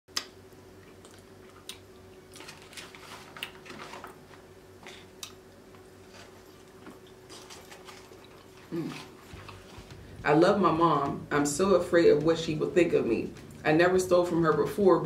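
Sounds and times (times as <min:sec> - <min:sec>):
faint steady hum: 0:00.1 - 0:15.0
wet chewing and smacking: 0:00.2 - 0:03.6, 0:04.9 - 0:10.2.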